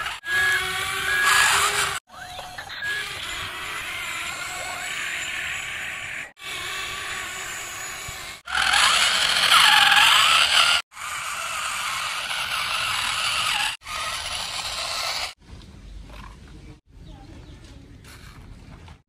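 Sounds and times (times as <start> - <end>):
toy gear motors whirring: 0.0 - 15.4.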